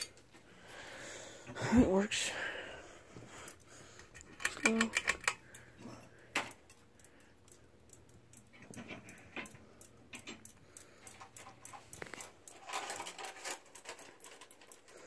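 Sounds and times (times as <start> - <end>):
fan motor humming: 0.0 - 15.0
light clicks and jingles: 3.2 - 15.0.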